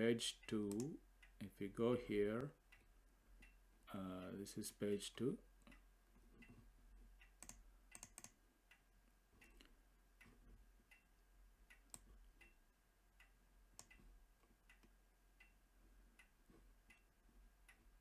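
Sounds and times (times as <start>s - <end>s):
low steady hum: 0.0s - 18.0s
scroll wheel ticks: 0.1s - 1.5s, 2.1s - 3.6s, 4.9s - 18.0s
computer mouse clicks: 0.7s - 1.0s, 7.2s - 8.4s, 11.7s - 12.6s.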